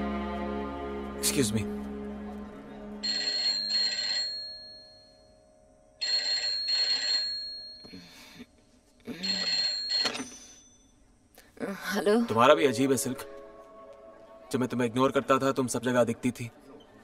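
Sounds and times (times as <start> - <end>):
telephone ringing: 3.0 - 7.9, 9.2 - 11.0.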